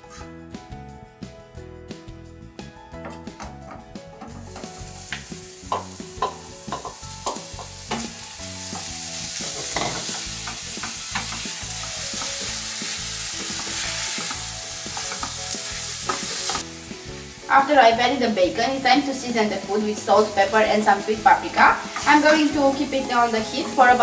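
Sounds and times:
wooden spoon scraping a pan: 0.0s - 0.3s
bacon and onion sizzling: 3.0s - 24.0s.

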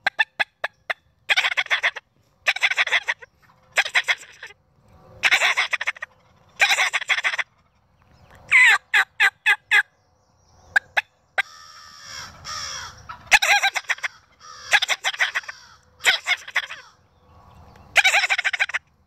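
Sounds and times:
turkey gobbling: 0.0s - 4.6s, 5.2s - 7.8s, 10.7s - 17.0s, 18.0s - 18.9s
turkey yelps: 0.0s - 4.6s, 5.2s - 7.7s, 8.5s - 9.9s, 10.7s - 17.0s, 17.9s - 18.9s.

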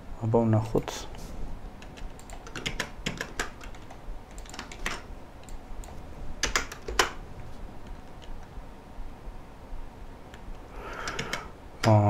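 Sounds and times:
keyboard key clicks: 11.0s - 12.0s.

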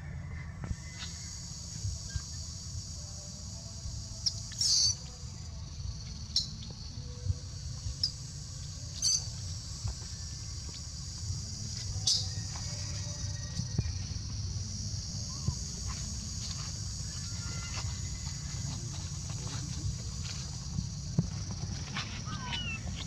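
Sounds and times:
baby monkey squeaking: 4.2s - 5.0s
baby monkey squealing: 4.6s - 5.0s.

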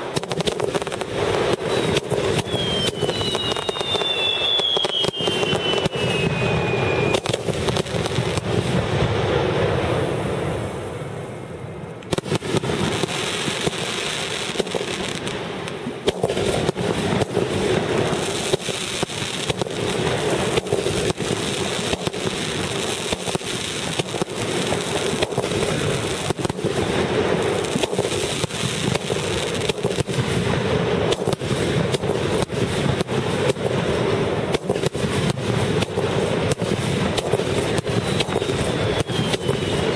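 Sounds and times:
fireworks bangs and crackling: 0.0s - 39.9s
falling firework whistle: 1.4s - 8.5s, 36.5s - 39.9s.

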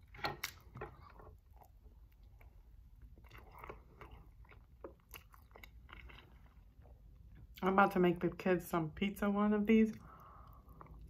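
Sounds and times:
chewing bread roll: 0.0s - 7.6s, 9.9s - 11.0s.

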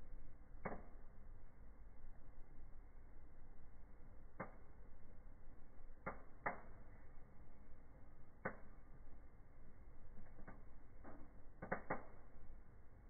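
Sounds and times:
steady low rush of fire: 0.0s - 13.0s
wood fire crackling and popping: 5.6s - 13.0s.

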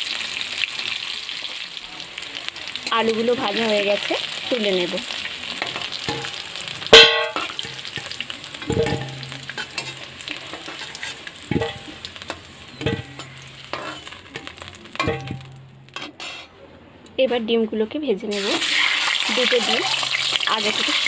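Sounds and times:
potatoes sizzling in oil: 0.0s - 16.4s, 18.3s - 21.0s
spatula knocking on pan: 5.6s - 7.8s, 8.7s - 10.0s, 12.8s - 13.9s, 15.0s - 16.1s
loud metal clank: 6.9s - 7.6s, 15.0s - 16.5s.

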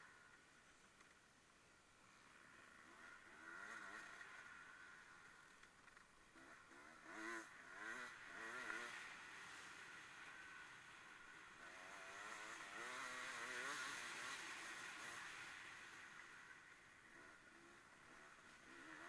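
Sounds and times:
distant racing engines revving: 6.3s - 16.3s.

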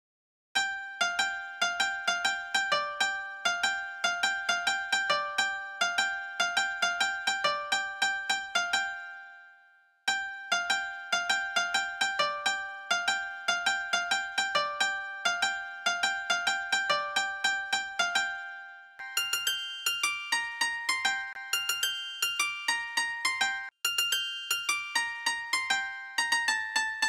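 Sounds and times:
instrumental music with repeated notes: 0.6s - 27.0s.

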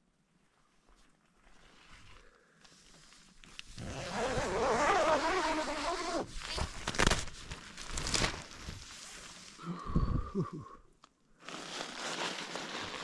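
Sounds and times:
tent fabric rustling: 0.9s - 9.6s, 11.4s - 13.0s.

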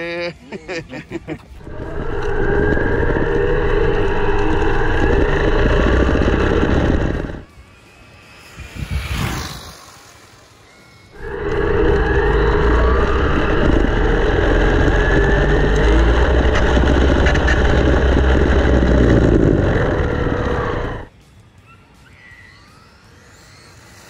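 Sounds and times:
tyres rumbling on asphalt: 1.6s - 7.5s, 11.2s - 21.1s
wind rushing over microphone: 1.6s - 7.5s, 8.4s - 9.8s, 11.2s - 21.1s
electric motor whine: 1.6s - 21.1s.

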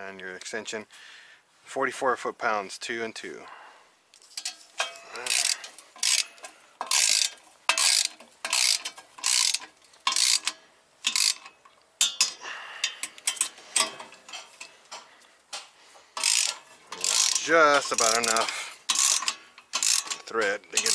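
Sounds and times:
torque wrench ratcheting: 4.4s - 13.9s, 16.2s - 20.9s.

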